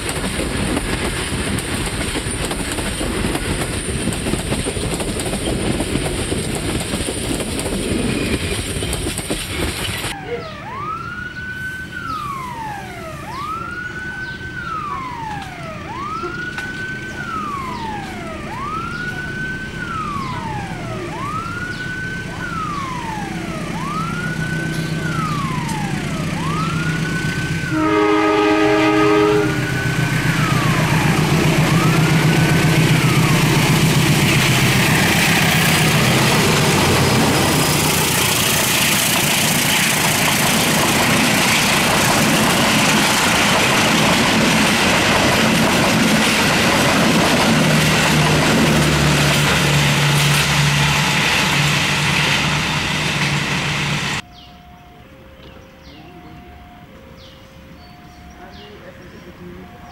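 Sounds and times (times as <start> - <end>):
diesel locomotive engine: 0.0 - 59.9
train carriages rumbling past: 0.0 - 59.9
level-crossing warning siren: 9.9 - 59.9
train horn blast: 27.6 - 30.0.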